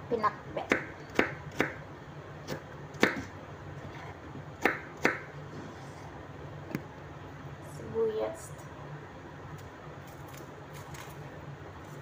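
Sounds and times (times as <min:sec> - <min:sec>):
knife chopping on wooden board: 0:02.5 - 0:03.3.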